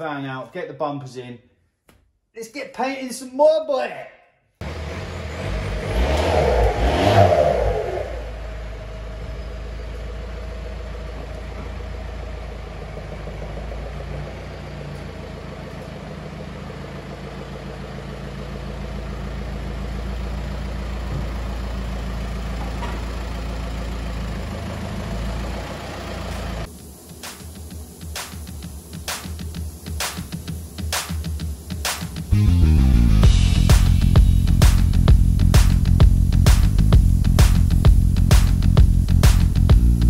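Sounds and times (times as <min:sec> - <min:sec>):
diesel engine revving and idling: 0:04.6 - 0:26.7, 0:32.3 - 0:40.0.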